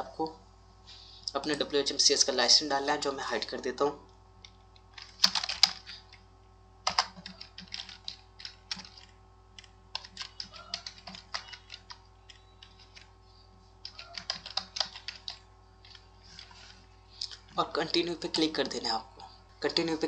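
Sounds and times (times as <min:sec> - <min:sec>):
faint steady hum: 0:00.0 - 0:20.0
keyboard typing: 0:04.4 - 0:13.2, 0:13.8 - 0:17.6.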